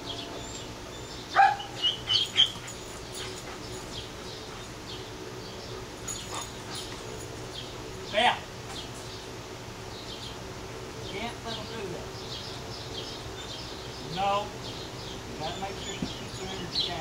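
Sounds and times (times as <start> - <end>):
dogs barking and yipping: 0.0 - 8.0.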